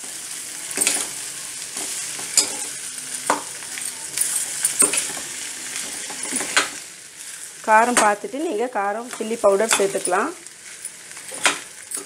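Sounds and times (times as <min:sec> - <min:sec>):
oil sizzling: 0:00.0 - 0:12.0
metal spatula scraping pan: 0:02.3 - 0:02.8.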